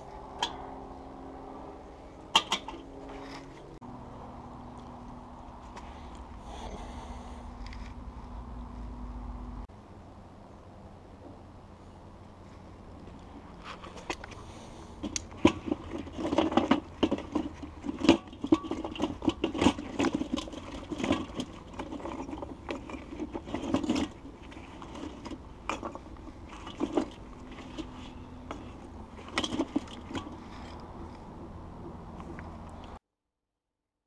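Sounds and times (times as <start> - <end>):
charcoal clinking and scraping: 13.5 - 31.2.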